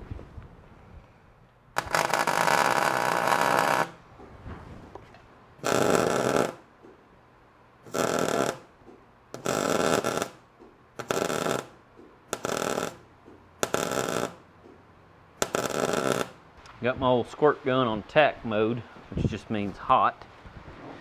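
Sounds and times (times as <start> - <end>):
welder crackling bursts: 1.8 - 5.0, 5.6 - 6.8, 7.8 - 14.5, 15.4 - 17.9.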